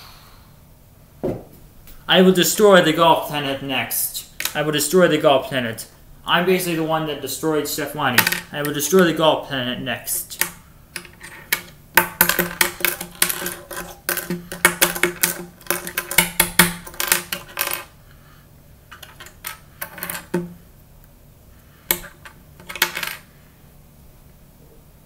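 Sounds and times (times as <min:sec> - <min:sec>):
plastic pieces clicking on table: 0:10.4 - 0:17.9, 0:18.9 - 0:20.5, 0:21.9 - 0:23.2.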